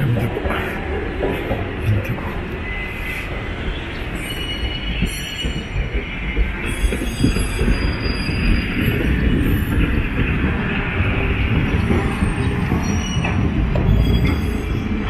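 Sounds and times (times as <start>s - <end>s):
tram rumbling past: 0.0s - 15.0s
high-pitched wheel squeal: 4.1s - 9.7s.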